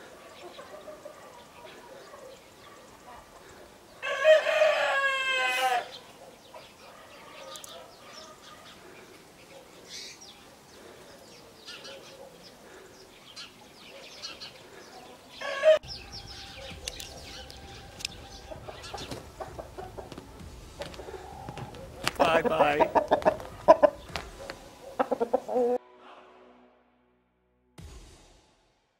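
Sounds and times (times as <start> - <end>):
rooster crowing: 4.0 - 6.0, 15.4 - 24.0
hens clucking: 16.5 - 25.8.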